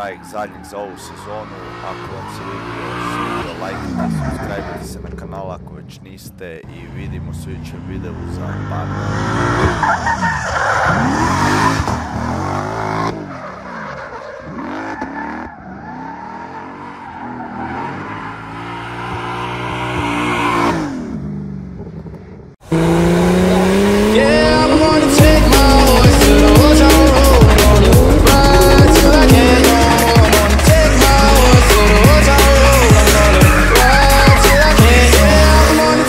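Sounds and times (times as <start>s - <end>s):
car engine revving: 0.0s - 36.0s
loud music: 22.8s - 36.0s
tyres squealing: 23.4s - 36.0s.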